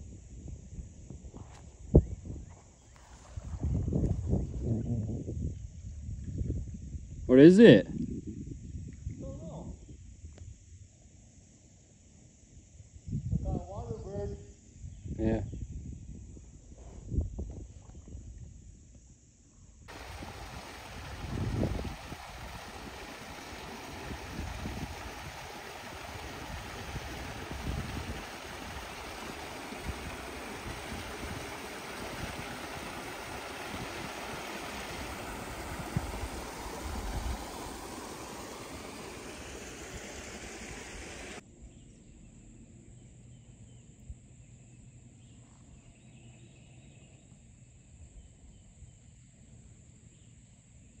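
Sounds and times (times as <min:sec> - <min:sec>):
wind buffeting microphone: 0:00.0 - 0:07.3, 0:19.9 - 0:41.4
waterfalls rushing: 0:19.9 - 0:41.4.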